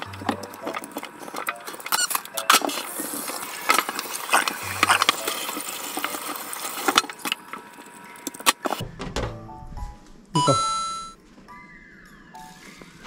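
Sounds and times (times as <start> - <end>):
tap water running into sink: 2.9 - 7.2.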